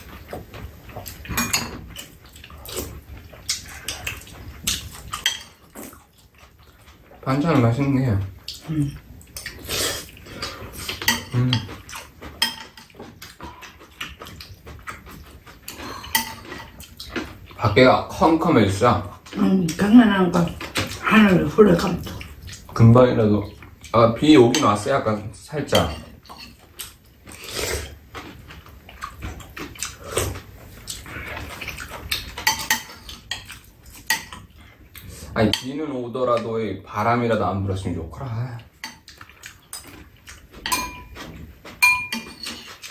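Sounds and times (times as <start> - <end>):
soft eating noises: 0.0 - 42.9
metal spoons clinking against bowls: 1.2 - 2.1, 3.5 - 5.7, 10.9 - 13.0, 15.7 - 16.9, 25.6 - 26.6, 32.1 - 34.5, 40.6 - 42.9.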